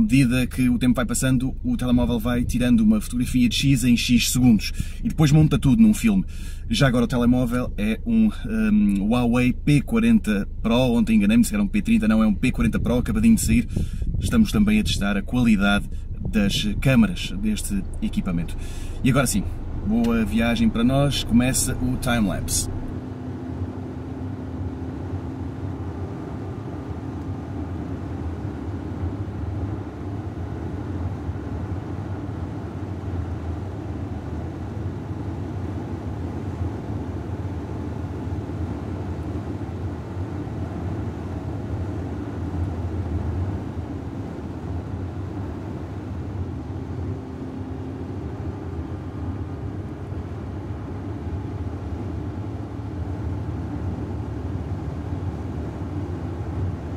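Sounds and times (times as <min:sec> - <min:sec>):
car engine drone: 0:00.0 - 0:56.9
tyre road noise: 0:11.8 - 0:56.9.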